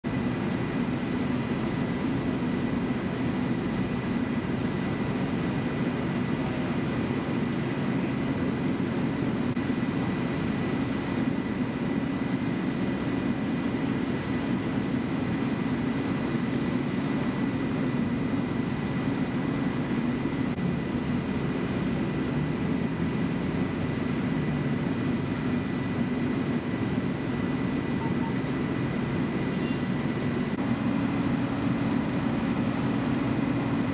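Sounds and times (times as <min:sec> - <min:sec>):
diesel engines droning: 0:00.1 - 0:33.9
faint high whine: 0:09.0 - 0:33.9.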